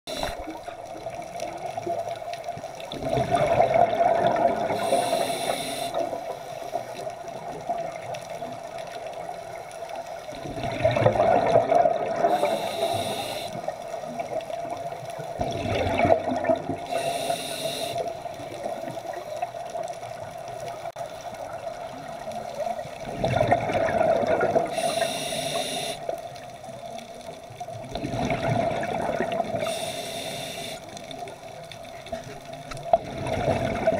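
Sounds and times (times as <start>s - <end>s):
regulator hiss: 0.1s - 0.7s, 4.8s - 6.9s, 12.3s - 13.8s, 16.9s - 18.3s, 24.7s - 26.1s, 29.5s - 31.0s
exhaled bubbles: 0.1s - 6.4s, 10.3s - 20.0s, 20.8s - 26.4s, 27.7s - 31.2s, 31.9s - 33.9s
steady underwater hum: 0.1s - 33.9s.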